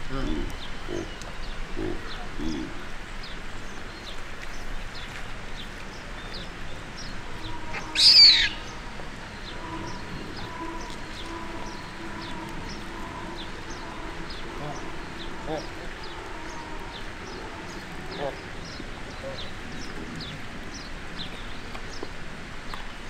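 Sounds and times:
small birds chirping: 0:00.0 - 0:22.9
faint steady hum: 0:00.0 - 0:23.0
loud high squealing call: 0:07.4 - 0:18.3.

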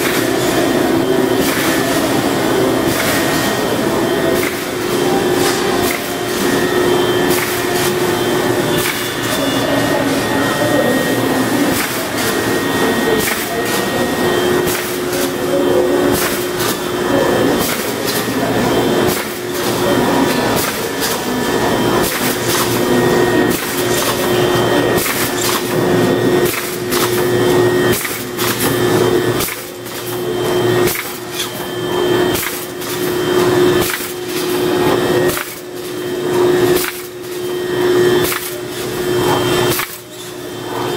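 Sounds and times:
machine humming with held tone: 0:00.0 - 0:40.9
sharp mechanical clacks: 0:25.0 - 0:25.8.

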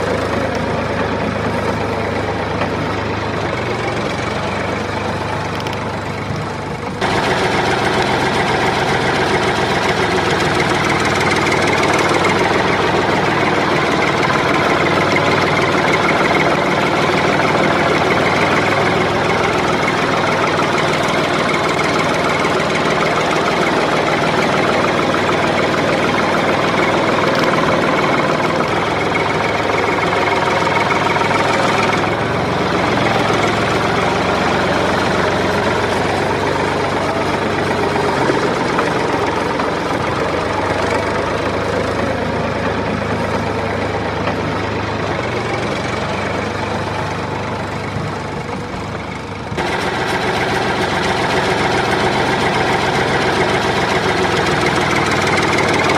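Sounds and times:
engine running steadily: 0:00.0 - 0:55.9.

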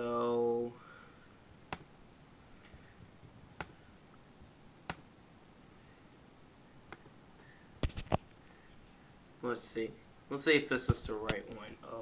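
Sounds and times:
computer mouse clicks: 0:03.6 - 0:03.8.

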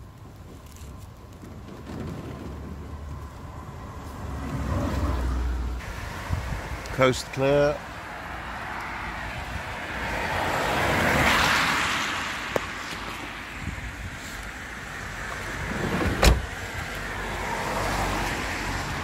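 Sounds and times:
cars passing on wet road: 0:00.0 - 0:19.0
van door shutting with thump: 0:15.7 - 0:16.5.

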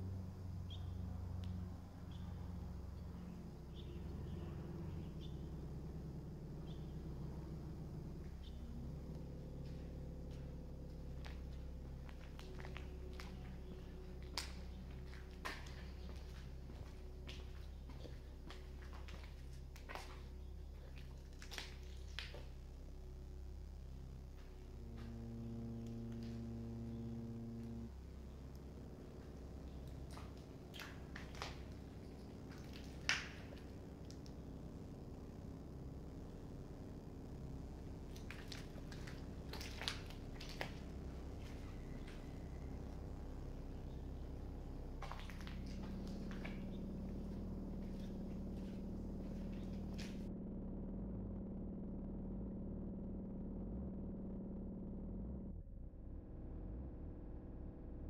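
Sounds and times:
faint low hum: 0:00.0 - 0:58.0
low rumble: 0:00.0 - 0:58.0
steady low drone: 0:00.0 - 0:58.0
footsteps crunching on debris: 0:09.0 - 0:22.6, 0:27.6 - 0:35.2, 0:37.6 - 0:50.3.

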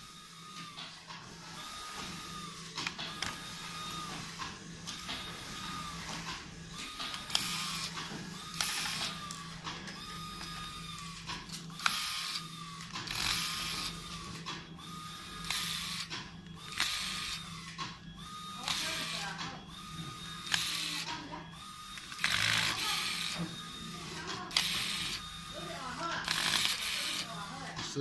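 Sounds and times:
electric screwdriver motor whine: 0:01.5 - 0:27.6
screwdriver clutch ratcheting: 0:22.0 - 0:23.4, 0:26.2 - 0:27.3.

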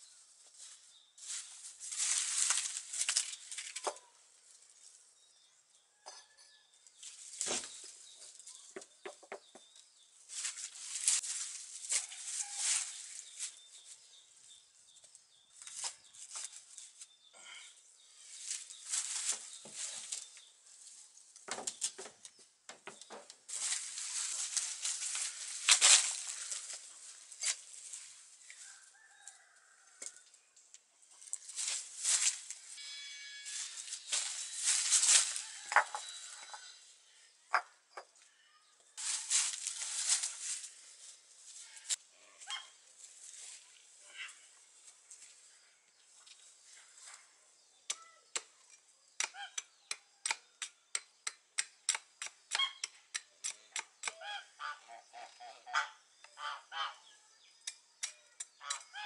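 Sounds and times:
leaves crunching underfoot: 0:00.0 - 0:04.1, 0:07.0 - 0:08.7, 0:10.2 - 0:14.2, 0:18.2 - 0:21.9, 0:23.5 - 0:29.6, 0:31.2 - 0:32.8, 0:33.4 - 0:36.4, 0:39.0 - 0:45.4.

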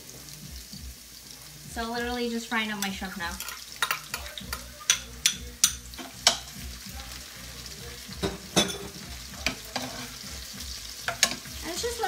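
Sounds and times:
food sizzling in oil: 0:00.0 - 0:12.0
spatula tapping and scraping pan: 0:02.8 - 0:06.6, 0:11.0 - 0:11.6.

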